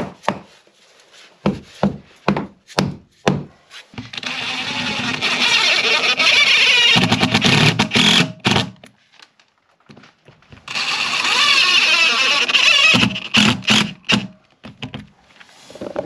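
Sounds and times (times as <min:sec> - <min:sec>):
impact driver hammering: 0:12.4 - 0:14.4.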